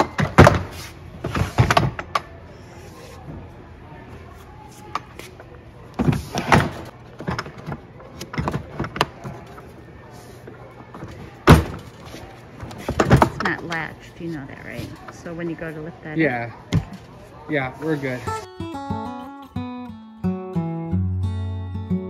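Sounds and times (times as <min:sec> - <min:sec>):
plastic tool boxes clunking: 0:00.0 - 0:02.3, 0:06.0 - 0:09.6, 0:10.9 - 0:13.8.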